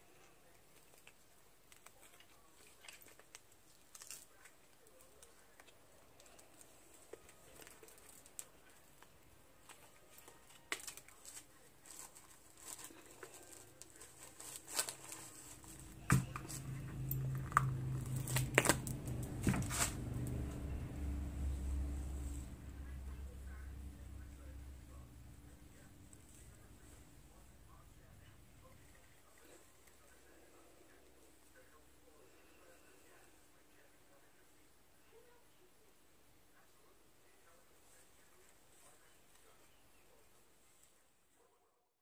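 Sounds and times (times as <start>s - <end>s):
resin peeling from a mold: 0.2s - 21.0s
steady low hum: 12.8s - 35.0s.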